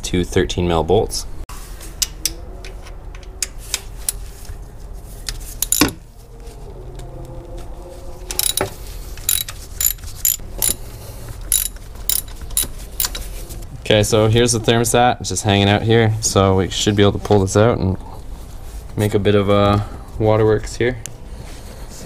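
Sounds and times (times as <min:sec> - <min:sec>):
socket ratchet clicking: 0:05.6 - 0:06.0, 0:08.4 - 0:08.7, 0:09.3 - 0:10.8, 0:11.5 - 0:13.2.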